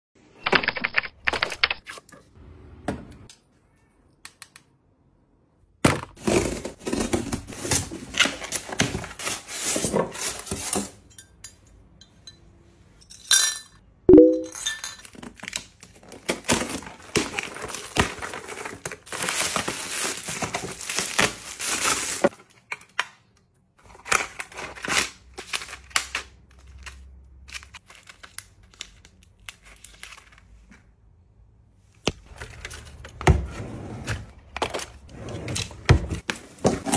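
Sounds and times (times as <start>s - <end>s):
cardboard and plastic crinkling: 15.0s - 22.8s.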